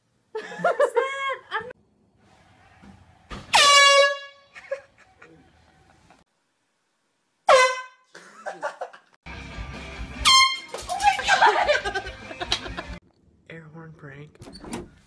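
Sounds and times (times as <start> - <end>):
air horn blasts: 3.5 - 4.5, 7.5 - 8.0, 10.2 - 10.8.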